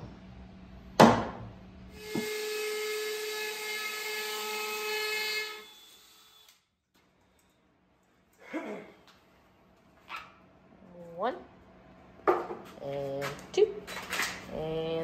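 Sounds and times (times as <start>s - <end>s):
cordless drill boring wood: 2.0s - 6.6s.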